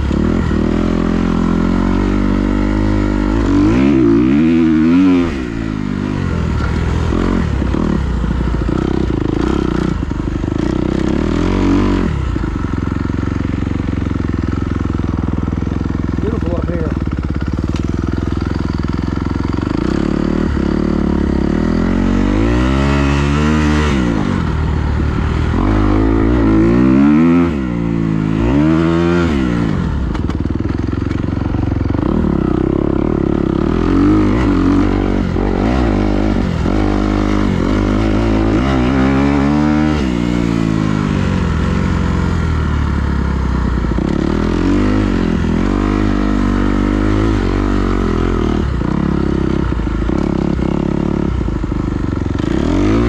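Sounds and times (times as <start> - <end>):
car engine revving: 32.2 - 43.0.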